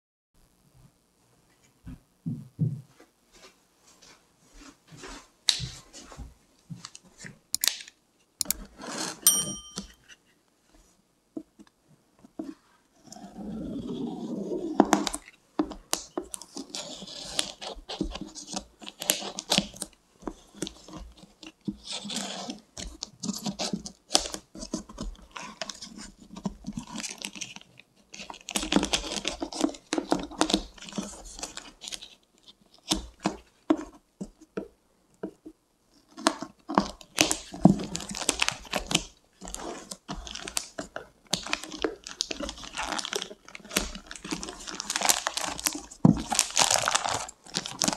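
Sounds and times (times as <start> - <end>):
plastic film crinkling: 36.2 - 47.9.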